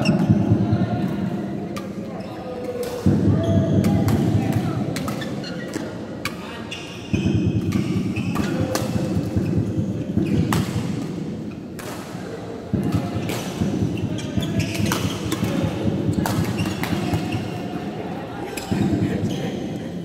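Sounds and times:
shoe squeaks on court: 5.2 - 5.9
rackets striking shuttlecock: 7.2 - 17.6.

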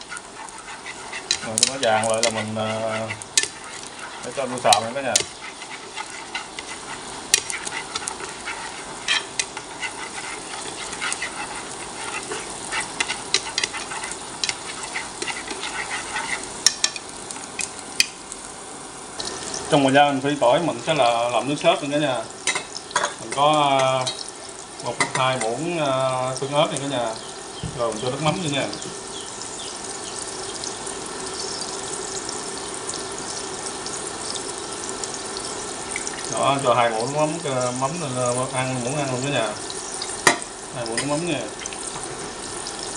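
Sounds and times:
chopsticks tapping a pan: 0.0 - 18.2, 22.4 - 24.2, 25.0 - 25.5, 40.2 - 41.3
garlic sizzling in hot oil: 0.0 - 42.9.

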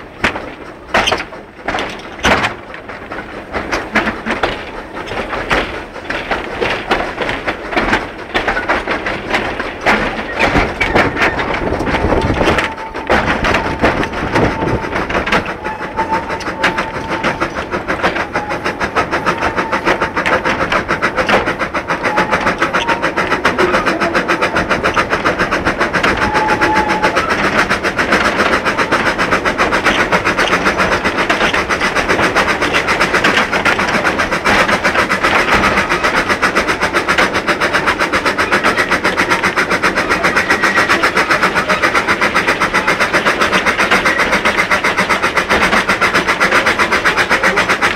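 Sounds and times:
steam locomotive exhaust beats: 0.0 - 47.9
wagon wheels clattering on rails: 0.0 - 47.9.

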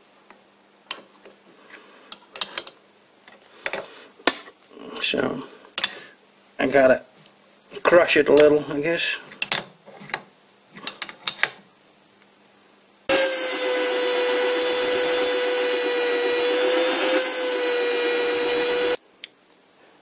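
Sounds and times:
rotary tool grinding metal: 13.1 - 19.0.

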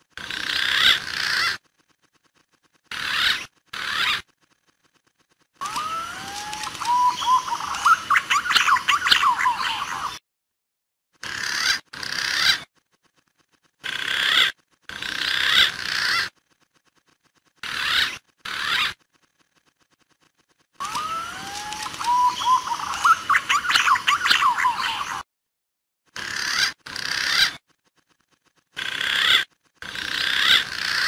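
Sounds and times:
chattering bird notes: 0.2 - 5.0, 5.6 - 10.2, 11.2 - 13.2, 13.8 - 25.2, 26.2 - 31.0
pigeon whistling calls: 5.6 - 10.2, 20.8 - 25.2.

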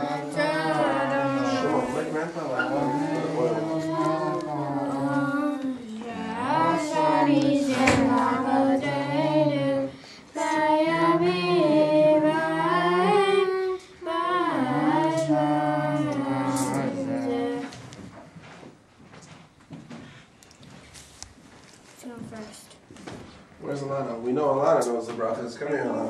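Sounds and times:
children and adults singing together: 0.0 - 18.0.

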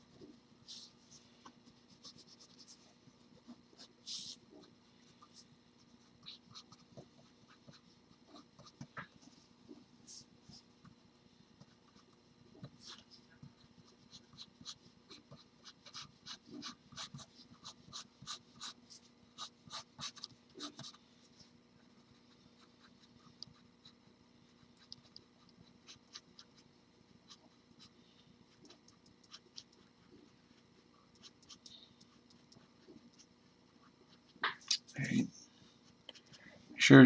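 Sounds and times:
pencil scratching on paper: 1.6 - 8.8, 11.6 - 21.0, 22.0 - 26.6, 28.5 - 34.4.

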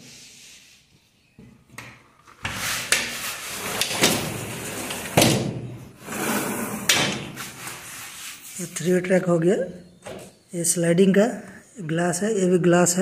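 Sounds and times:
sliding window scraping on track: 2.5 - 5.2, 6.0 - 8.4.

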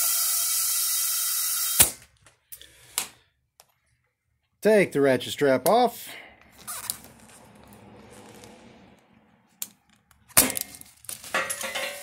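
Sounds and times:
handling noise: 6.5 - 12.0
metal clattering and clinking: 10.3 - 12.0.

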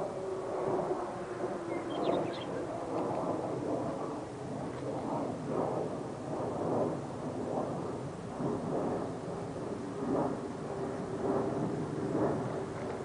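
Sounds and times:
wind rumbling on microphone: 0.0 - 13.0
bird chirps: 1.7 - 2.5.

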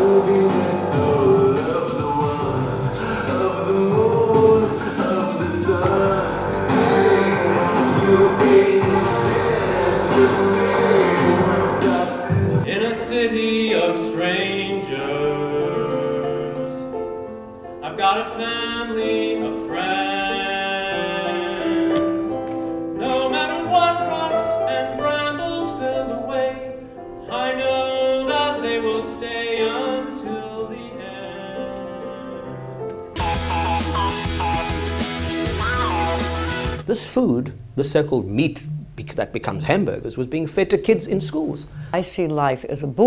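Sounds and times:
person singing operatically: 0.0 - 17.0, 17.8 - 22.4, 23.0 - 32.6
piano accompaniment: 0.0 - 36.9.

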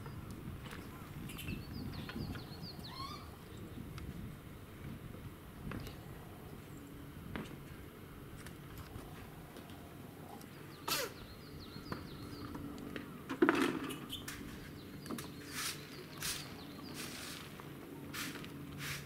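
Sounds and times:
steady low hum: 0.0 - 19.0
faint bird chirps: 0.8 - 3.8.

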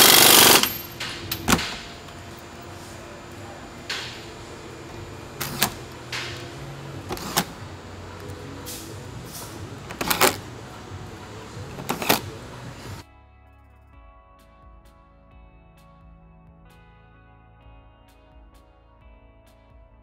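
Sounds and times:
mechanical clicks and clanks: 0.0 - 13.0
steady low hum: 0.0 - 13.0
faint music: 0.0 - 20.0.

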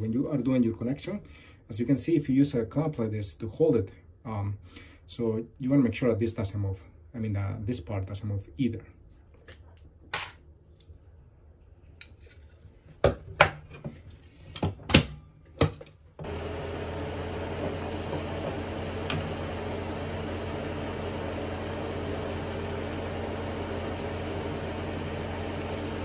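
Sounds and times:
fan whirring: 16.2 - 26.0.

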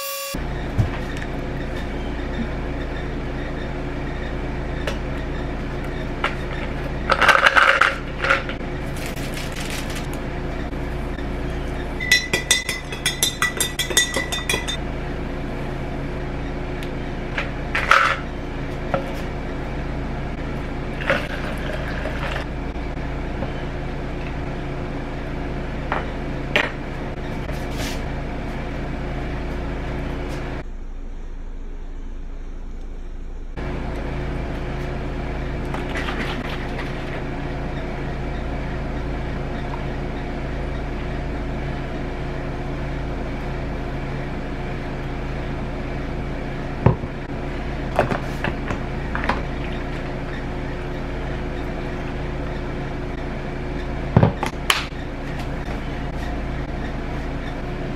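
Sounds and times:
electrical hum: 0.0 - 57.9
spoon clinking in ceramic mug: 12.0 - 14.8.

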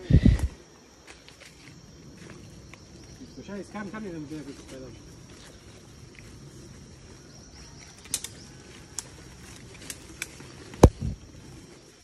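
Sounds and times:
high insect drone: 0.0 - 12.0
sharp clicks: 8.0 - 9.1.

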